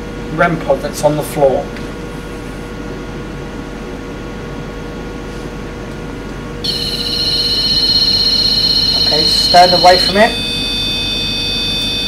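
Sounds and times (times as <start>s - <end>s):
background hiss and hum: 0.0s - 12.0s
high-pitched wavering electronic alarm: 6.6s - 12.0s.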